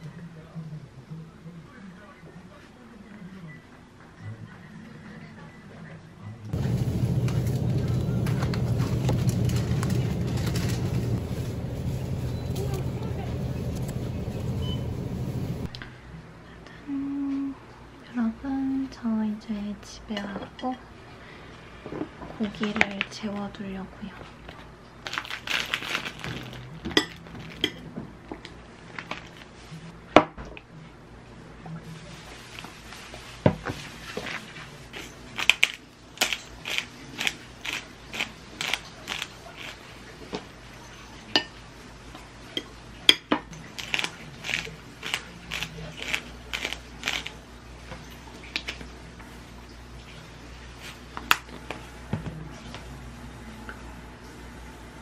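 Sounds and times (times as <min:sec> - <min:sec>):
plastic packaging rustling: 0:06.6 - 0:15.7, 0:25.0 - 0:27.7, 0:32.2 - 0:39.9, 0:43.7 - 0:47.4
pepper grinder clicking: 0:35.4 - 0:39.8, 0:43.8 - 0:47.3.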